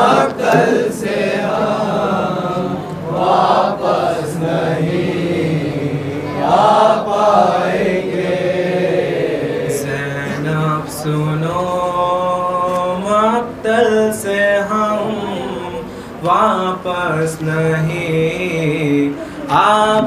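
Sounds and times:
male voices chanting a lament: 0.0 - 20.0.

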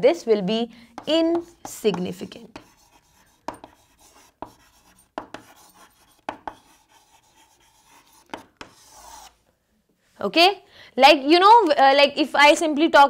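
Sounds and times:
chalk tapping on chalkboard: 0.9 - 9.4
chalk scratching on chalkboard: 1.0 - 9.4.

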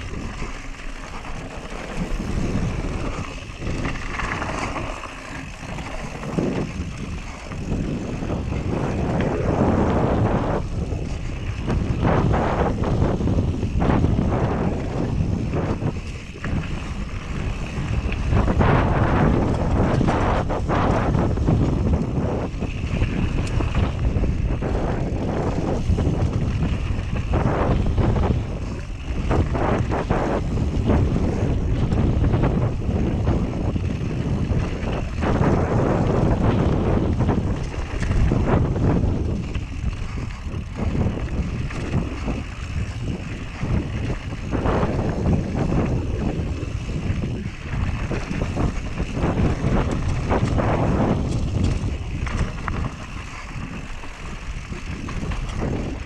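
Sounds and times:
bike clattering over bumps: 0.0 - 56.0
tyres rolling over stones: 0.0 - 56.0
wind rushing over microphone: 0.0 - 56.0.

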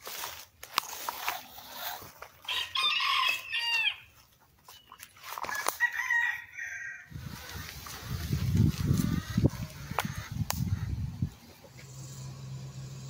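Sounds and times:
rustles in dry leaf litter: 0.0 - 3.9, 7.1 - 10.2
rooster crowing: 2.4 - 4.1, 5.4 - 7.2
chicken calling: 2.4 - 11.5.

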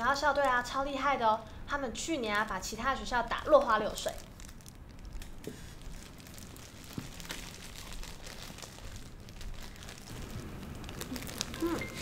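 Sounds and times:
plastic wrapper crinkling: 2.3 - 12.0.

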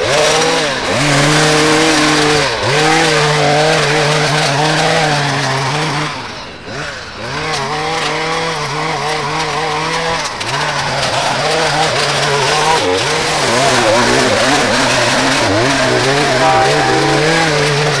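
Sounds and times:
string trimmer running: 0.0 - 18.0.

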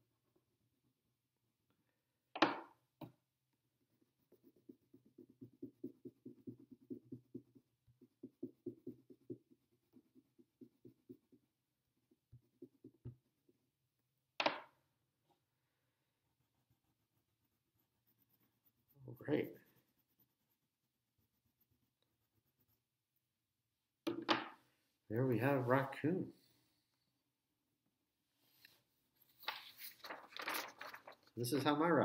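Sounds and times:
marker scribbling on paper: 3.9 - 11.4, 16.3 - 23.4
paper rustles: 29.3 - 31.8.

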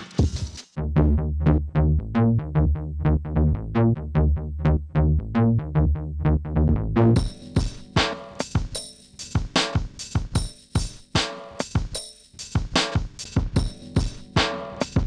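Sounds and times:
drum loop: 0.0 - 0.8, 7.2 - 15.0
heavy bass line: 0.8 - 8.4, 13.4 - 15.0
plucked synth notes: 0.8 - 8.4.

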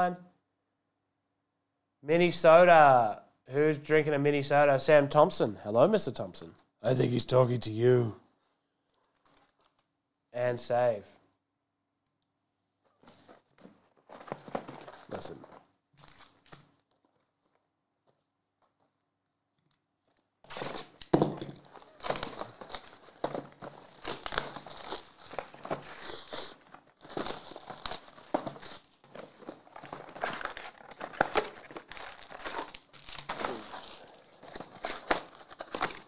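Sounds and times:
foil wrappers crinkling: 13.0 - 17.1, 20.5 - 36.0
cardboard tearing: 21.6 - 36.0.

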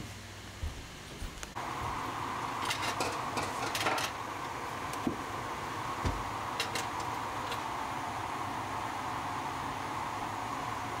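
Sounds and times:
utensils clattering: 2.6 - 4.2, 6.6 - 7.6.

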